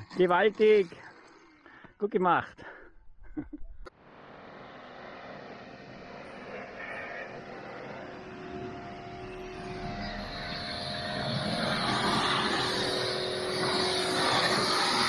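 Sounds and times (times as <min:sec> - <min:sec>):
vehicle motor humming: 0:04.0 - 0:15.0.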